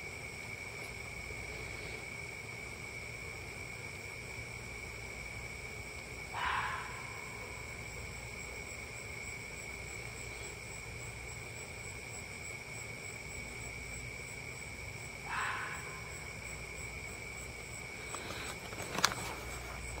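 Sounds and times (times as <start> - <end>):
night insects chorus: 0.0 - 20.0
fox barking: 6.3 - 7.8, 15.2 - 16.3.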